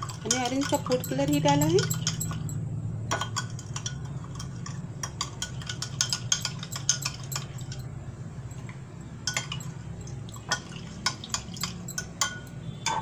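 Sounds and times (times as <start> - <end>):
spoon clinking in glass: 0.0 - 7.9, 8.5 - 13.0.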